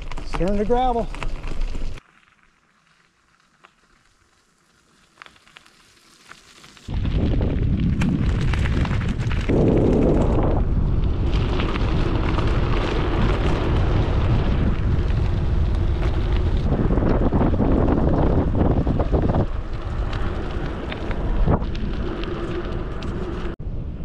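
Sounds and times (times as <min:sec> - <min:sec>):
bike tyres on road: 0:00.0 - 0:24.0
wind buffeting microphone: 0:06.9 - 0:24.0.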